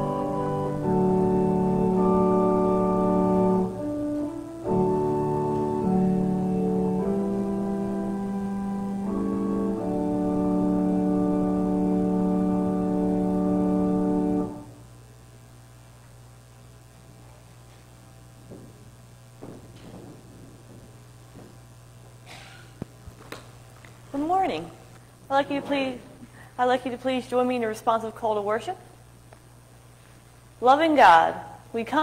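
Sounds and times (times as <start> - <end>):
organ sustained chords: 0.0 - 22.8
low room hum: 0.0 - 32.0
faint knocks: 18.4 - 23.9.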